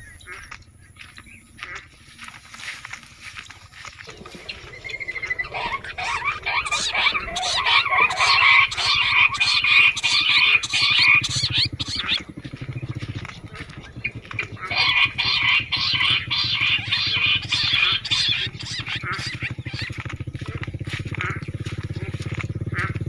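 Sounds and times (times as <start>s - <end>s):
low steady hum: 0.0s - 23.0s
quail calls chattering: 0.0s - 23.0s.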